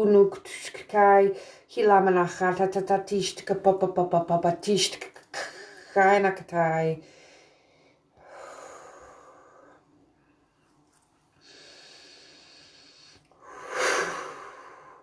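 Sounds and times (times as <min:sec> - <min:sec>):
woman breathing: 0:01.4 - 0:01.7, 0:07.0 - 0:10.5, 0:11.4 - 0:15.0.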